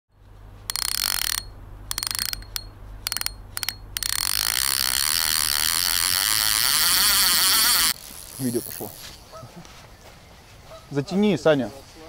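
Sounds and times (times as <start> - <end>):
fishing reel drag clicking: 0.7 - 9.0.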